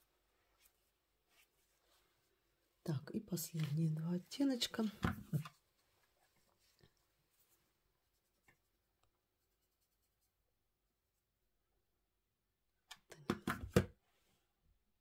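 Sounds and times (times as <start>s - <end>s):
hand tapping and knocking: 13.2s - 13.9s.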